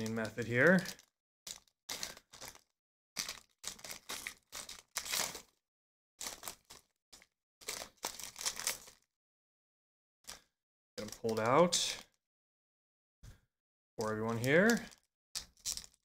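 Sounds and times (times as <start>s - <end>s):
foil wrapper crinkling: 0.0s - 5.5s, 6.2s - 9.1s, 11.0s - 11.9s, 14.3s - 16.0s.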